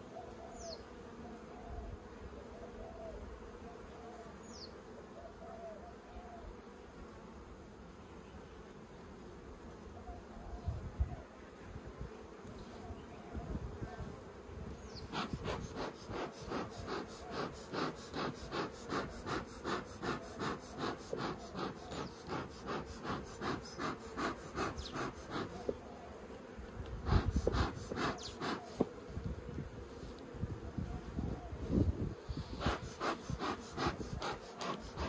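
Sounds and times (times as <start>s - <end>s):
honeybees humming: 11.2s - 35.0s
bee smoker bellows puffing: 14.9s - 25.8s, 26.8s - 29.1s, 32.2s - 35.0s.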